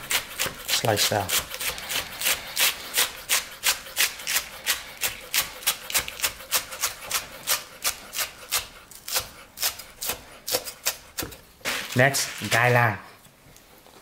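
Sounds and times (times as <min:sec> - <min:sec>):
knife chopping on wooden board: 0:00.0 - 0:02.0.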